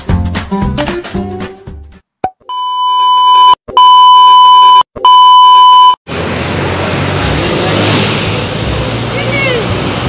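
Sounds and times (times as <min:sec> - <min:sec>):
street traffic noise: 0:06.1 - 0:10.0
wind: 0:06.1 - 0:10.0.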